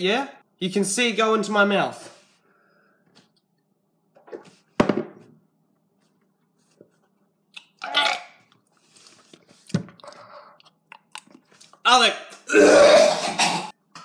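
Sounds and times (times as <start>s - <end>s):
man gagging and heaving: 12.4s - 13.7s.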